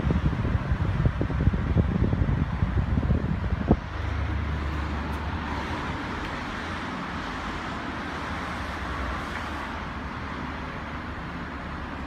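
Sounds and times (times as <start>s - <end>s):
exhaust fan running: 0.0s - 4.4s.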